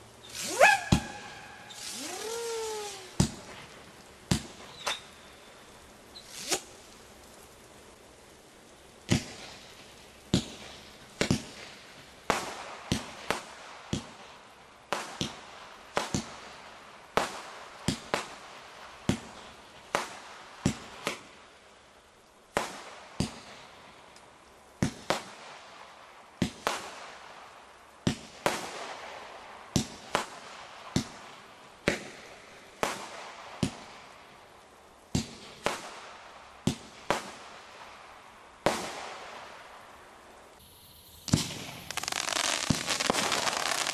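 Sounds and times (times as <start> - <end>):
fireworks bangs: 0.0 - 5.2, 38.6 - 39.6, 40.6 - 43.9.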